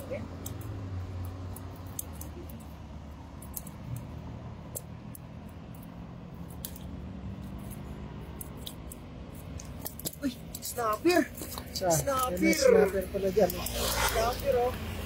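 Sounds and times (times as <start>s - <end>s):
sharp ticks: 0.3s - 12.6s, 13.2s - 14.6s.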